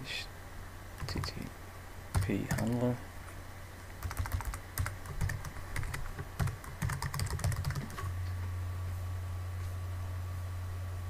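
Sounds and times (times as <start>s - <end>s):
steady low hum: 0.0s - 11.0s
computer keyboard typing: 1.0s - 1.5s, 2.1s - 2.9s, 4.0s - 8.0s.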